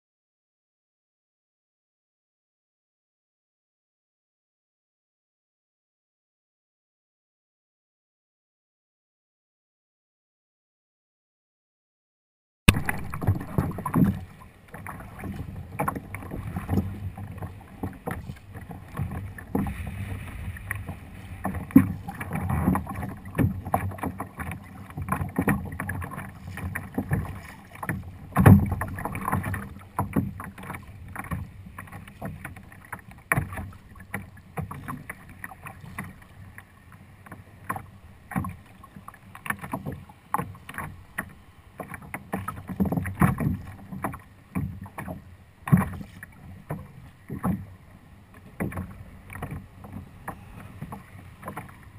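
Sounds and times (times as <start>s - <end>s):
water slapping kayak hull: 12.7s - 51.9s.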